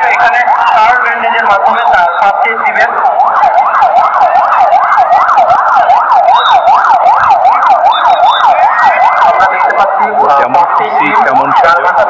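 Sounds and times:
ambulance siren yelping: 0:00.0 - 0:12.0.

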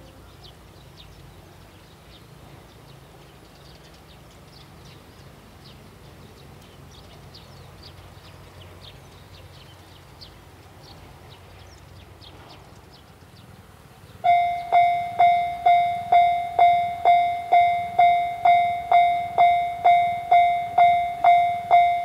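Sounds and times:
low steady hum: 0:14.0 - 0:22.0.

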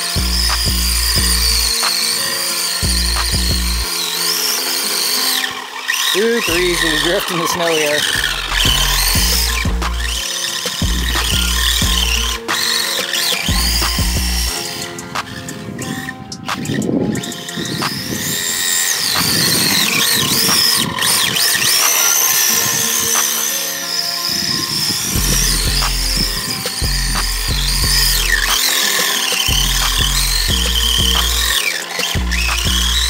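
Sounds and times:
background music: 0:00.0 - 0:33.0
high-pitched electric motor whine: 0:00.0 - 0:33.0
heavy bass beat: 0:00.2 - 0:01.8, 0:02.8 - 0:03.9, 0:06.5 - 0:07.2, 0:08.2 - 0:10.2, 0:10.8 - 0:12.6, 0:13.4 - 0:14.6, 0:25.2 - 0:28.6, 0:29.5 - 0:31.6, 0:32.2 - 0:33.0.

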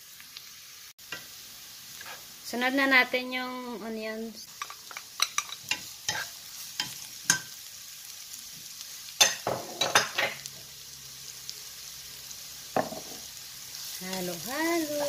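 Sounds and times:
onions sizzling in hot oil: 0:00.0 - 0:15.0
spoon scraping and knocking pan: 0:04.5 - 0:07.6, 0:09.2 - 0:10.5, 0:12.8 - 0:13.3.

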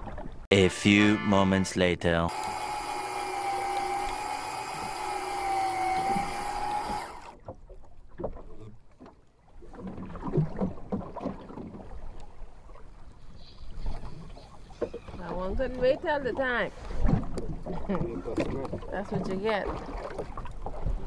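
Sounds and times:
held musical tone: 0:00.5 - 0:02.4
water slapping boat hull: 0:02.3 - 0:21.0.

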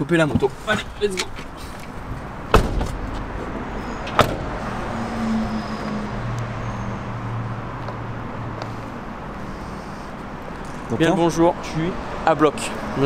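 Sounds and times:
low vehicle hum: 0:00.0 - 0:11.0
van door slamming: 0:02.4 - 0:04.8.

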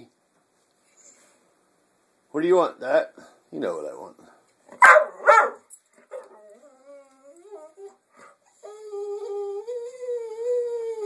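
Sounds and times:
dog whining: 0:05.2 - 0:11.0.

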